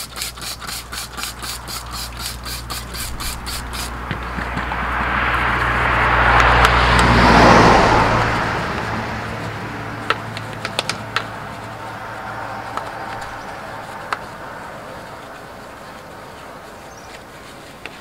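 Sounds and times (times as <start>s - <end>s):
vehicle passing close by: 0.0s - 18.0s
sharp clicks: 10.0s - 11.4s.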